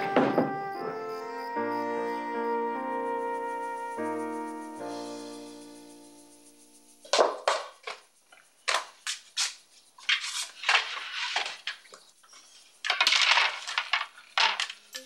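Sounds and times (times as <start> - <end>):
small objects clattering on desk: 7.1 - 12.1, 12.8 - 15.0
rustling and scraping: 7.1 - 15.0.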